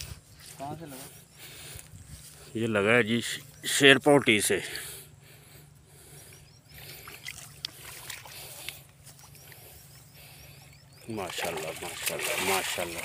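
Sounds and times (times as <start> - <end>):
steady low hum: 0.0 - 13.0
rhythmic high chirping: 5.0 - 7.4, 8.9 - 11.3
fish splashing at water surface: 6.9 - 8.9, 11.2 - 13.0.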